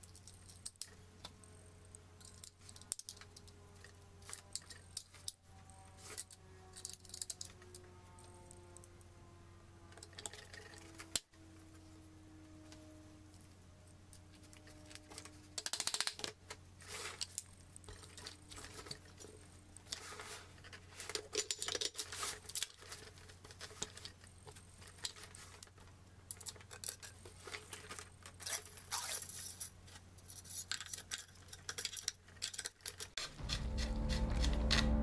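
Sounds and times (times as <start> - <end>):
shotgun parts clicking and scraping: 2.2 - 7.9, 9.9 - 11.2, 14.4 - 33.6.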